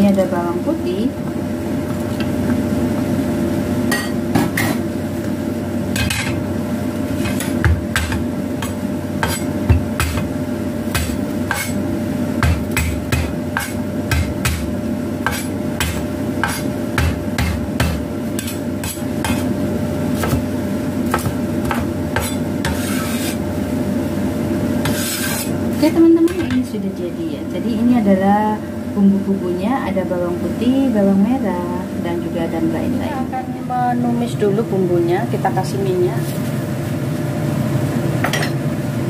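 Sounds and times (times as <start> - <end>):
steady low hum: 0.0 - 39.0
cleaver chopping on wooden board: 7.6 - 10.3, 20.2 - 20.5, 21.1 - 22.9.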